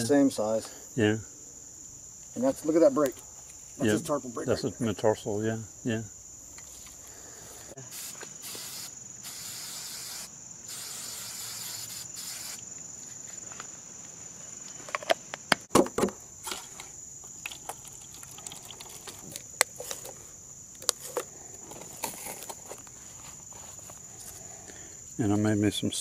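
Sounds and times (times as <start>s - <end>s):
high drone of insects: 0.0s - 26.0s
aerosol spray can hissing: 7.9s - 12.7s.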